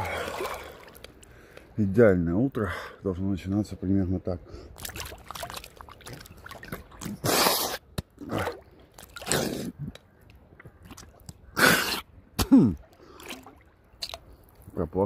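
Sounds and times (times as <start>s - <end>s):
man snorting and blowing nose: 7.2s - 7.8s, 11.6s - 12.0s
man clearing throat: 12.4s - 12.8s.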